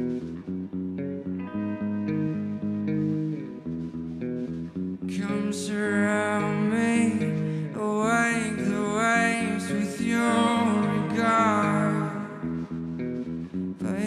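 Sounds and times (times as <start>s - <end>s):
picked guitar notes: 0.0s - 14.0s
man singing: 5.1s - 12.6s.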